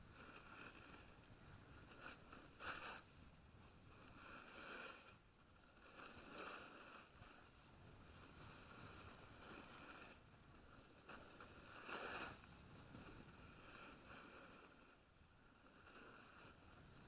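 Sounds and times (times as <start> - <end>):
snowboard sliding on snow: 0.0 - 17.0.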